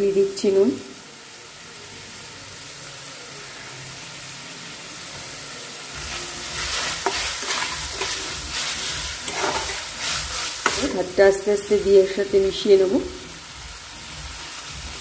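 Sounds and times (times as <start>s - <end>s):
chicken sizzling in hot oil: 0.0s - 15.0s
spatula scraping a pan: 6.0s - 11.0s.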